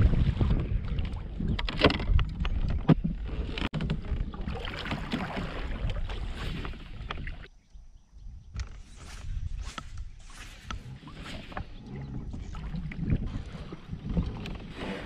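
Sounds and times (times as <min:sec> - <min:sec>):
water against kayak hull: 0:00.0 - 0:07.5, 0:08.6 - 0:15.0
wind on microphone: 0:00.0 - 0:07.5, 0:08.1 - 0:15.0
fishing rod and reel clicking: 0:08.5 - 0:11.8.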